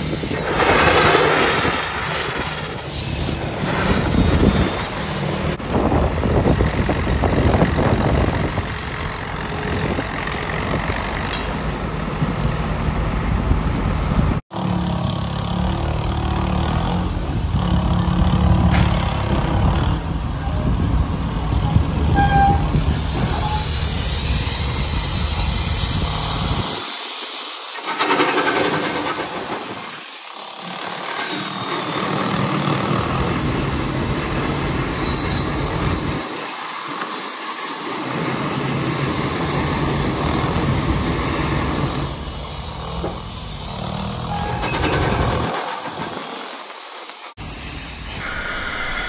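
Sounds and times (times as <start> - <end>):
steam hissing: 16.6 - 48.8.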